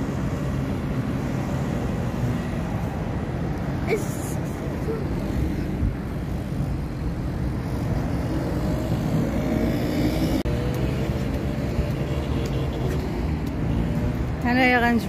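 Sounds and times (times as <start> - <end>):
quad bike engines droning: 7.5 - 15.0.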